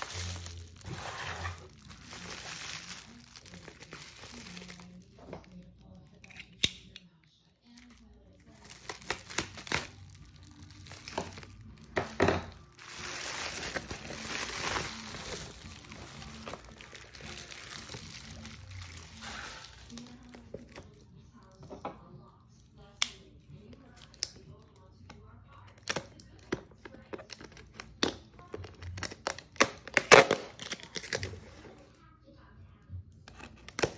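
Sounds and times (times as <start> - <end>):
foil crinkling: 0.0 - 5.7, 7.7 - 21.0.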